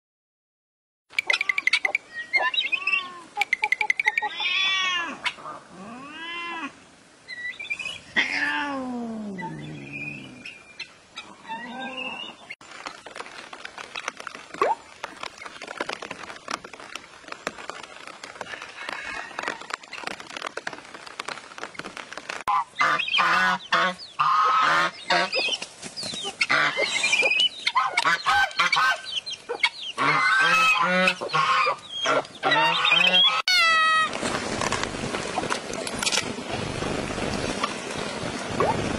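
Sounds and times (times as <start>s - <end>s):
chickens calling: 1.2s - 5.6s, 22.5s - 34.1s
ducks calling: 22.5s - 34.0s.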